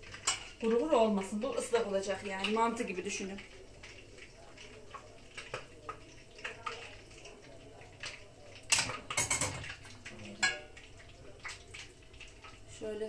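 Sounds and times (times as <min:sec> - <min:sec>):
metal ladle clinking on pot: 0:08.7 - 0:09.8, 0:10.4 - 0:10.8.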